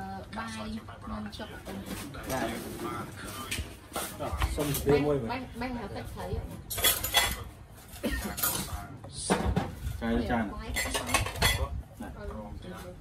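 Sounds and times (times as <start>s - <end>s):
dishes and cutlery clinking: 6.5s - 9.8s, 10.7s - 11.8s.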